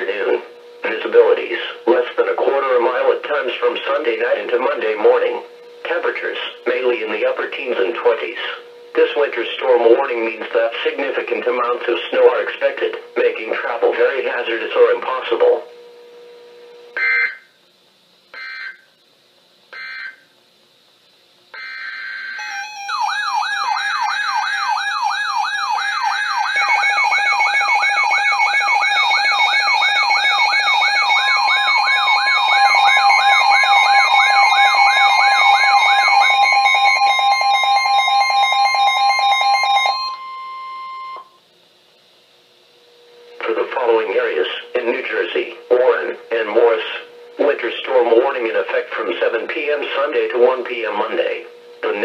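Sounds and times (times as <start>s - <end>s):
steady warning tone: 0.0s - 41.5s, 42.2s - 52.0s
warbling siren tones: 18.3s - 18.9s, 19.7s - 20.3s, 21.6s - 41.4s
digital data bursts: 21.6s - 40.7s.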